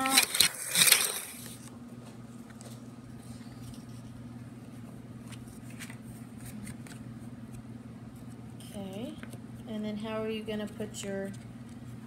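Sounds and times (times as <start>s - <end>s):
paper rustling and crinkling: 0.0s - 1.7s, 5.2s - 7.0s
steady low hum: 0.0s - 12.0s.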